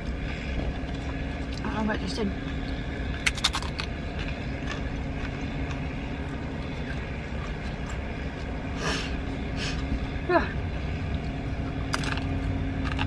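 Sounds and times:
traffic rumble: 0:00.0 - 0:13.0
chips being chewed: 0:02.4 - 0:08.6, 0:11.1 - 0:13.0.

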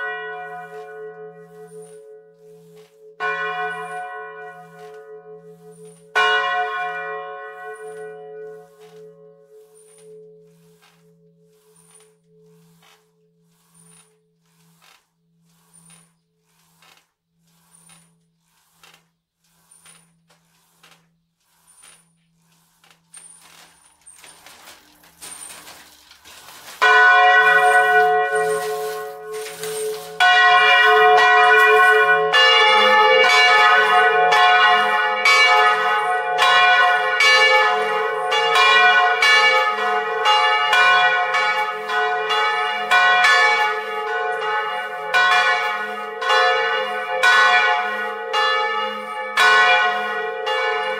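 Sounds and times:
church bells ringing: 0:00.0 - 0:12.8, 0:26.5 - 0:50.9.

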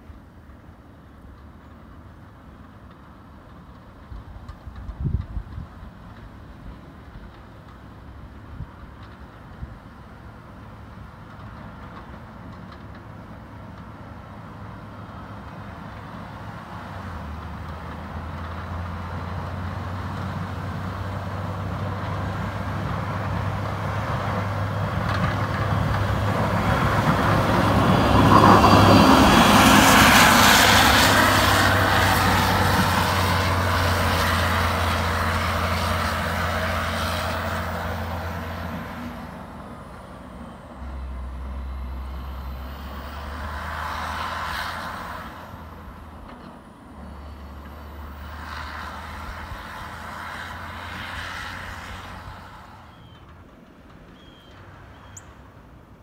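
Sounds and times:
plow blade scraping snow: 0:14.0 - 0:53.3
diesel engine running: 0:17.2 - 0:43.9.

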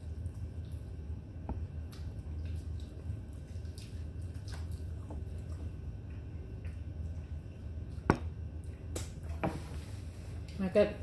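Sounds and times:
chewing crispy chicken: 0:01.8 - 0:08.0.

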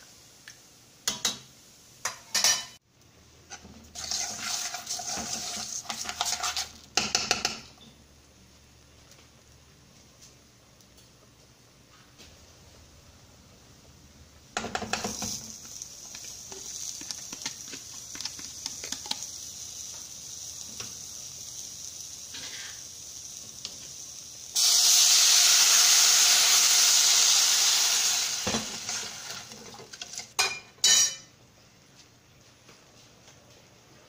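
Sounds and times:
pots and utensils clattering: 0:02.0 - 0:02.8, 0:28.3 - 0:31.3
steaks sizzling in a pan: 0:14.9 - 0:29.7.

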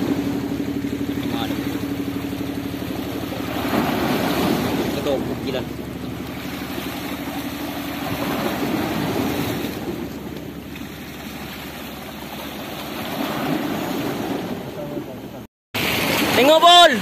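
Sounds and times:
waves washing over rocks: 0:00.0 - 0:17.0.

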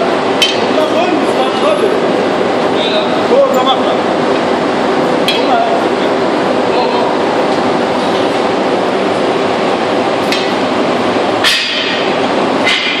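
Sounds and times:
workshop machinery running: 0:00.0 - 0:13.0
metal rods clanking on trays: 0:00.4 - 0:00.7, 0:11.4 - 0:13.0.

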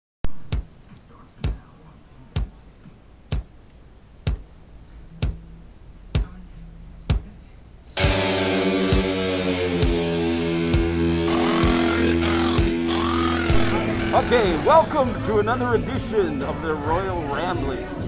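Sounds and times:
heavy footsteps thudding: 0:00.3 - 0:00.7, 0:03.3 - 0:03.5, 0:04.3 - 0:04.5, 0:07.1 - 0:07.3, 0:08.0 - 0:14.1
music with held notes: 0:07.9 - 0:18.0.

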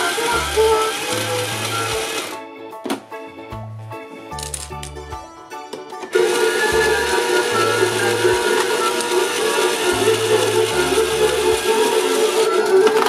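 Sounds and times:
toy motor and gears running: 0:00.0 - 0:02.4, 0:06.1 - 0:13.0
music playing: 0:00.0 - 0:13.0.

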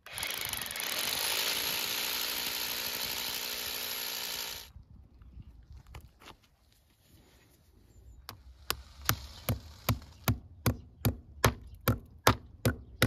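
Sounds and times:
power drill running: 0:00.0 - 0:04.7.

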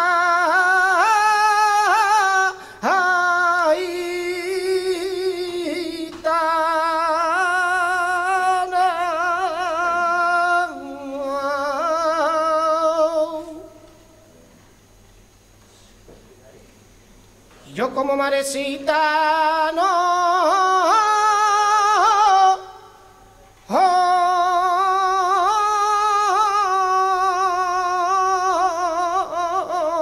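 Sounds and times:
man singing unaccompanied: 0:00.0 - 0:14.1, 0:17.6 - 0:30.0
singer breathing: 0:02.6 - 0:02.9.

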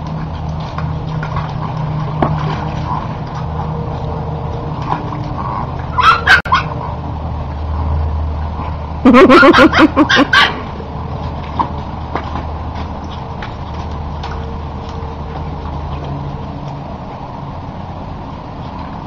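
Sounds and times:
low hum: 0:00.0 - 0:19.0
dog crying high-pitched: 0:05.9 - 0:06.7, 0:09.1 - 0:10.6.

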